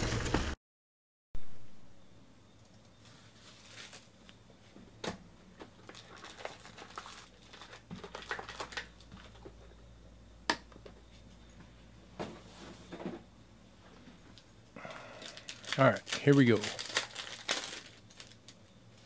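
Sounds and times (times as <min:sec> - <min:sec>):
foil card packs rustling: 0:03.2 - 0:04.2, 0:05.6 - 0:09.6, 0:14.8 - 0:18.6
plastic shrink wrap crinkling: 0:05.8 - 0:09.4, 0:15.2 - 0:18.6.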